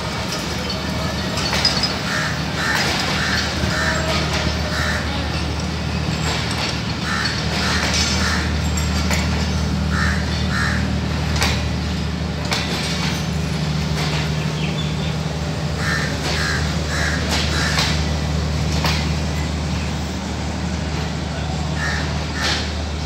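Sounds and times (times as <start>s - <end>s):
diesel generator hum: 0.0s - 23.0s
wheels clicking over rail joints: 0.0s - 23.0s
crows cawing: 4.7s - 5.1s, 9.9s - 10.9s, 15.8s - 18.0s, 21.8s - 22.7s.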